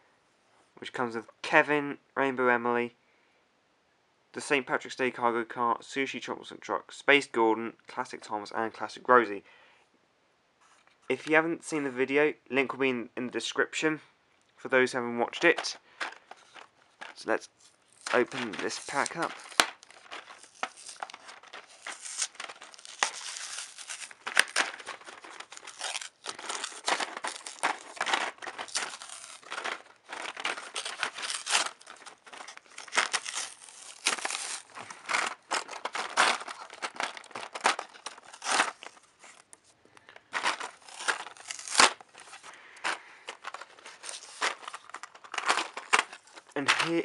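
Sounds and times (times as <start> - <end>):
toy packaging being torn open: 17.9 - 47.0.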